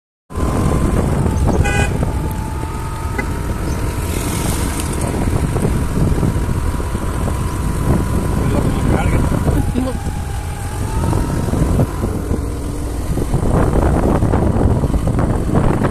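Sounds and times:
road vehicle rumble: 0.3 - 15.9
horn toot: 1.5 - 2.2.

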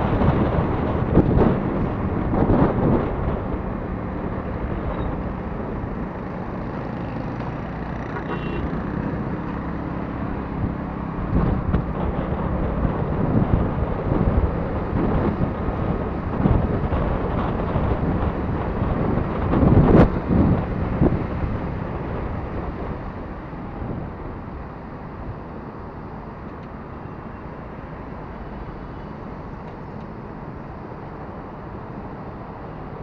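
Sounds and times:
wind buffeting microphone: 0.0 - 25.5
motorcycle engine hum: 0.0 - 33.0
road noise: 0.0 - 33.0.

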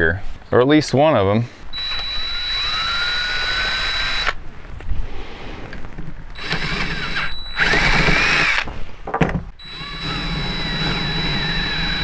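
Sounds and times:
cordless drill running: 1.7 - 4.4, 6.4 - 8.7, 9.6 - 12.0
drill bit squealing against metal: 6.4 - 8.6.

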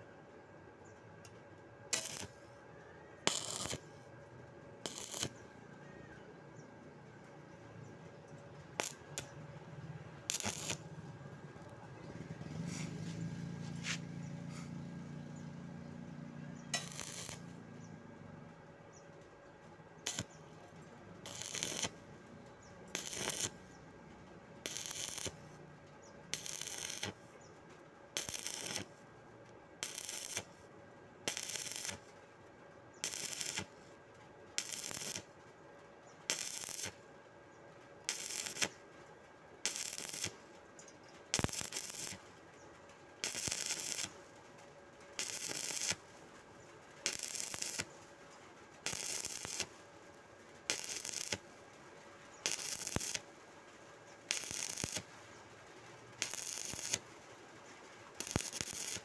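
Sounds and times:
welding arc crackling: 1.9 - 2.4, 3.3 - 3.9, 4.8 - 5.4, 8.1 - 12.3, 15.2 - 18.5, 20.0 - 27.4, 28.2 - 29.0, 29.8 - 30.6, 31.2 - 32.1, 33.0 - 33.8, 34.6 - 35.4, 36.3 - 37.0, 38.0 - 38.8, 39.6 - 40.6, 41.3 - 53.4, 54.0 - 59.0.

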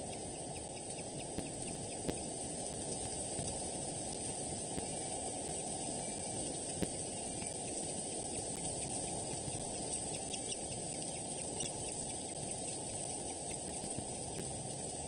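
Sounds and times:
outdoor background hiss: 0.0 - 15.0
faint high bird chirps: 4.8 - 14.3.

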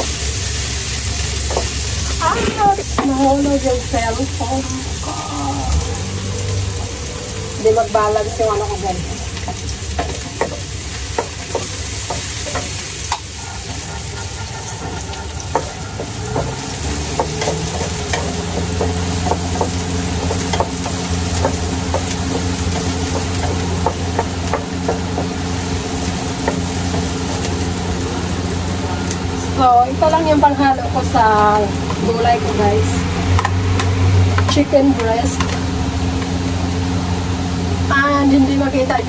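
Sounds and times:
food sizzling in frying pan: 0.0 - 39.0
spatula tapping pan: 1.4 - 1.8, 9.4 - 27.6.

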